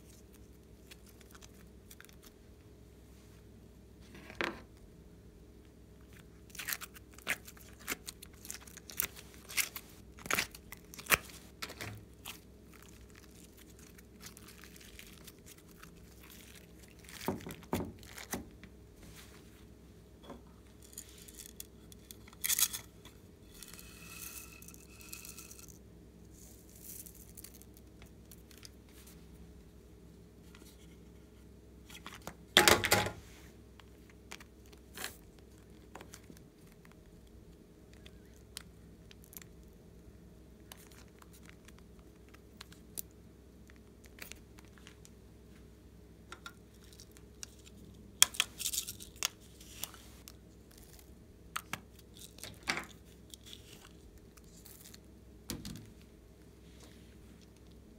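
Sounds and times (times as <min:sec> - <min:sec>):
packaging tearing and crinkling: 0:06.5 - 0:18.4.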